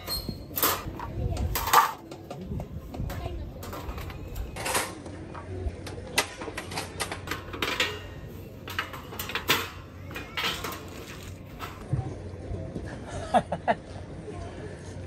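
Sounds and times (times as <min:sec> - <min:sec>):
metal parts clinking and scraping: 0:00.0 - 0:02.3, 0:03.1 - 0:05.1, 0:06.2 - 0:11.8.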